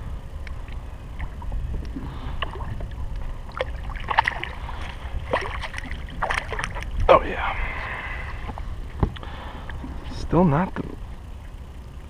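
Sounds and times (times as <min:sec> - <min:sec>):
low water rumble: 0:00.0 - 0:12.0
small water splashes: 0:02.0 - 0:07.0
fish splashing at surface: 0:03.6 - 0:06.9.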